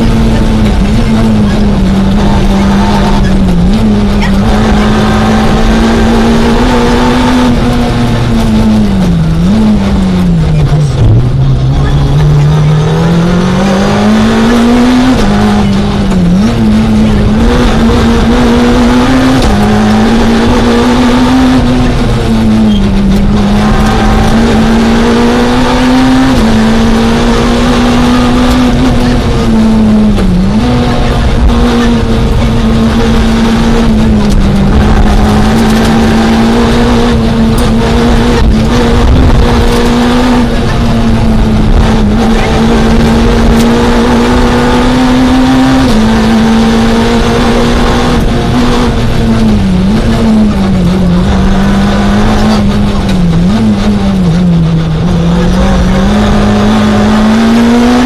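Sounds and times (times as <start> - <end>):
car engine at high revs: 0.0 - 58.0.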